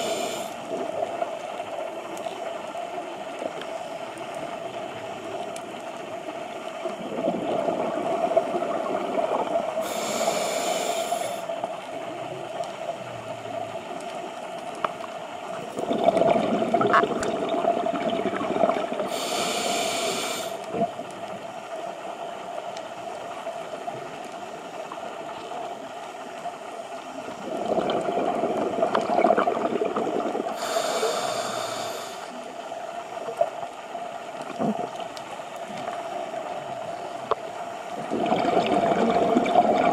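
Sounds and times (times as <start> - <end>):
diver breathing through regulator: 0.0 - 0.6, 9.8 - 11.5, 19.1 - 20.7, 30.5 - 32.4
exhaled bubbles rushing: 7.0 - 9.8, 15.7 - 19.1, 27.4 - 30.6, 38.0 - 39.9.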